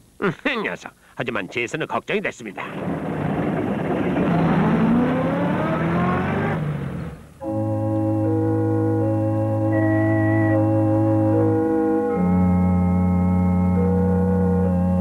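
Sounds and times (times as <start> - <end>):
vehicle engine accelerating: 2.7 - 7.4
organ playing held chords: 3.5 - 15.0.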